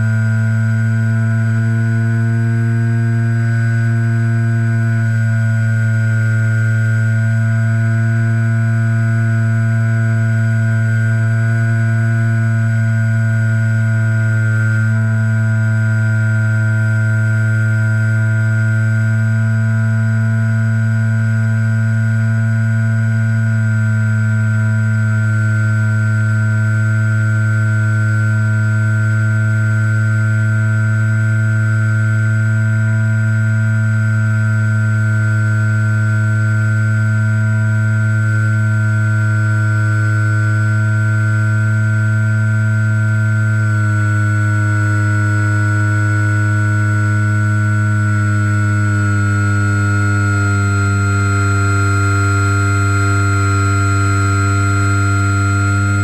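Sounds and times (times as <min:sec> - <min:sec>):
electric model plane motor buzzing: 0:43.8 - 0:56.0.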